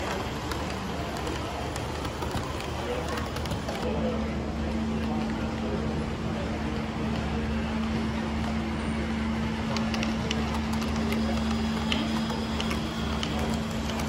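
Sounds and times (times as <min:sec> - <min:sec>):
rapid sharp clicks: 0:00.0 - 0:03.9
model train running on track: 0:00.0 - 0:14.0.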